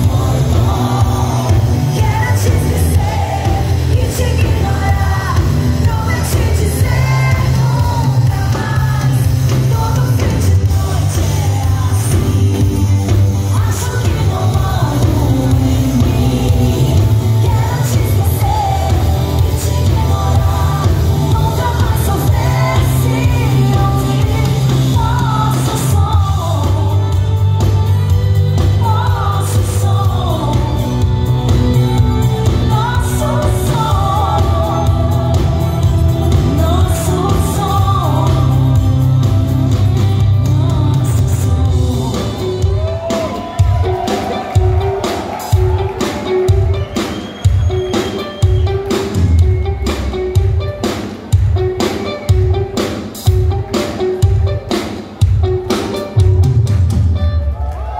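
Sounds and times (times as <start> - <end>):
electric bass: 0.0 - 43.0
woman singing: 0.0 - 46.8
drums: 0.0 - 57.9.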